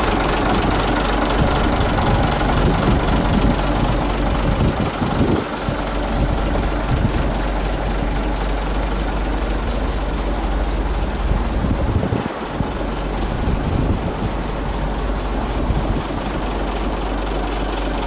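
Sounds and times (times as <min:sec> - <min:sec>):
wind rumble on microphone: 0:00.0 - 0:08.6, 0:10.3 - 0:16.7
heavy vehicle engine idling: 0:00.0 - 0:18.0.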